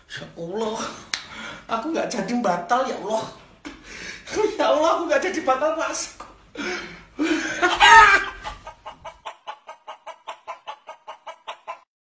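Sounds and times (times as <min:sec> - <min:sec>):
chicken call: 0:07.7 - 0:08.7
chicken clucking: 0:07.7 - 0:11.9.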